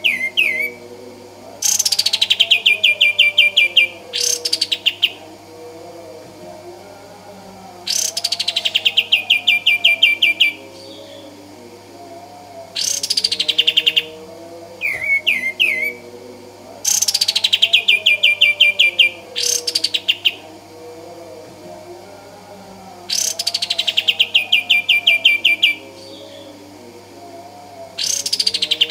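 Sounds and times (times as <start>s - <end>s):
bird singing rapid repeated notes: 0.0s - 0.8s, 1.6s - 5.2s, 7.9s - 11.4s, 12.8s - 14.2s, 14.8s - 16.0s, 16.9s - 20.5s, 23.1s - 26.6s, 28.0s - 28.9s.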